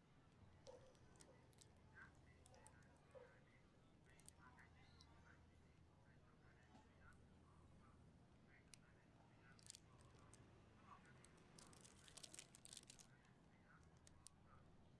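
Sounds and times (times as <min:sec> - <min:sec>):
paper wrapper crinkling: 0:11.5 - 0:13.1.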